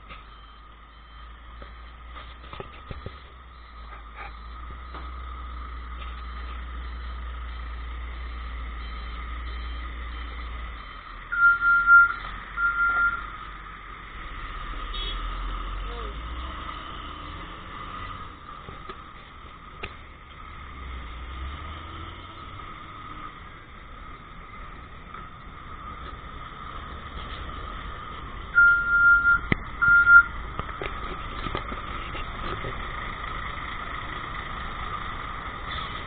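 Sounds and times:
truck engines rumbling: 0.0s - 36.0s
electronic beeper beeps: 6.2s - 13.3s, 28.6s - 30.3s.

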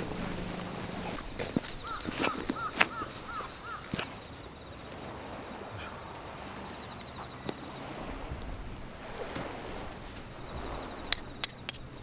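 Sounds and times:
steady outdoor hiss: 0.0s - 12.0s
camping gear clicking and knocking: 0.6s - 3.2s.

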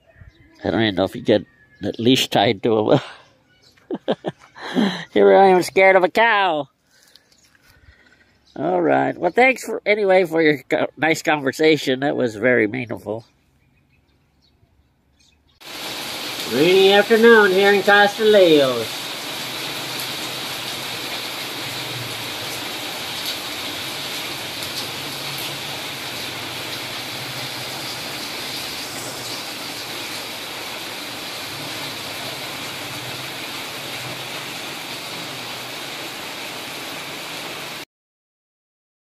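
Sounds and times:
heavy rain on foliage and puddles: 4.2s - 5.1s, 15.6s - 37.8s.

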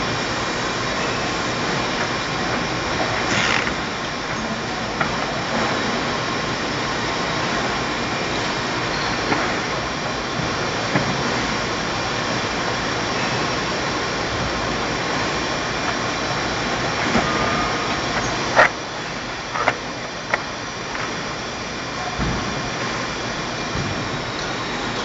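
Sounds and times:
paper stack sliding clicks: 3.0s - 3.8s.

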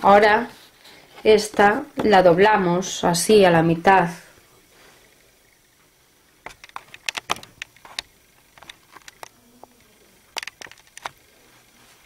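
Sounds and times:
cardstock crackling as folded: 6.4s - 12.0s.

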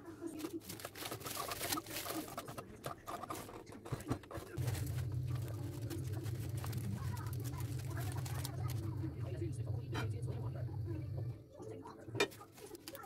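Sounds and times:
spatula scraping on foil: 0.0s - 11.2s, 12.2s - 13.0s
aluminium foil crinkling: 0.0s - 13.0s
steady low hum: 4.6s - 12.3s.

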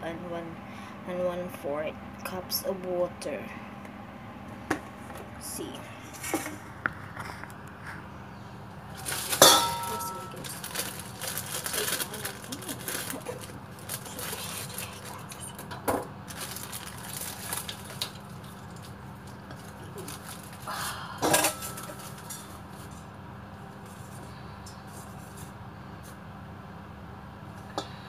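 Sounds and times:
steady low hum: 0.0s - 28.0s
kitchen bowls and utensils clinking: 9.0s - 16.0s, 21.2s - 23.0s.

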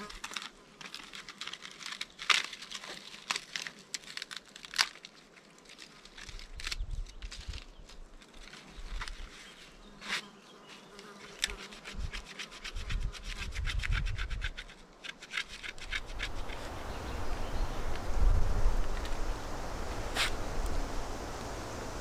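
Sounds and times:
blade scraping material: 11.1s - 16.7s.

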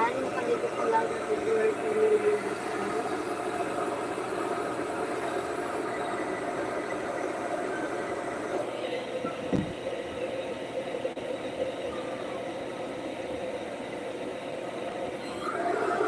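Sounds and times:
hair dryer blowing: 0.0s - 6.7s.

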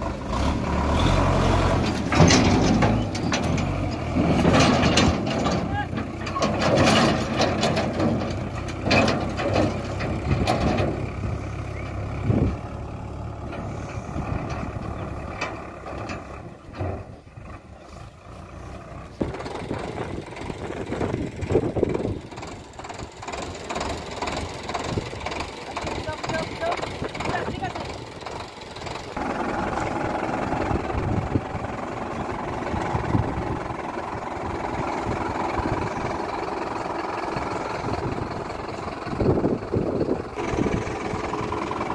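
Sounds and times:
tractor diesel engine running: 0.0s - 41.9s
knocks and rattles: 1.8s - 11.2s, 13.5s - 17.3s, 19.2s - 29.2s.

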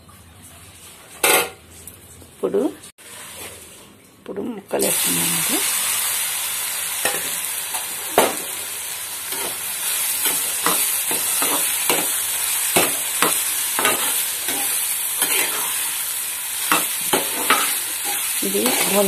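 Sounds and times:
vegetables sizzling in oil: 4.7s - 19.0s.

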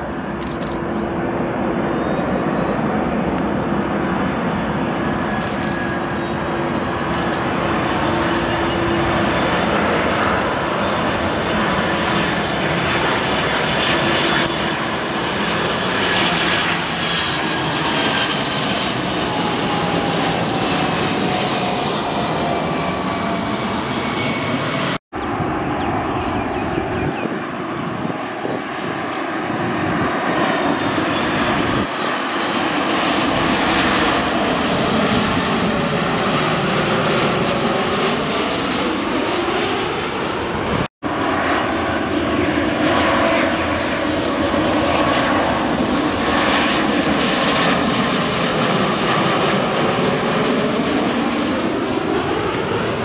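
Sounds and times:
jet airliner passing overhead: 0.0s - 53.0s.

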